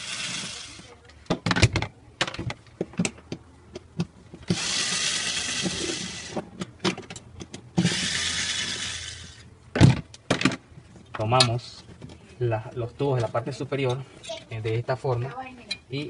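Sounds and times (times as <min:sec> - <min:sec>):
cordless drill motor running: 0:00.0 - 0:00.9, 0:04.5 - 0:06.4, 0:07.8 - 0:09.4.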